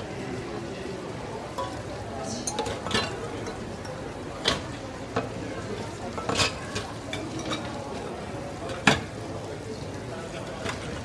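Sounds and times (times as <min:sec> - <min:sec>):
steady background noise: 0:00.0 - 0:11.0
metal utensils clinking: 0:01.5 - 0:05.4, 0:06.0 - 0:07.8.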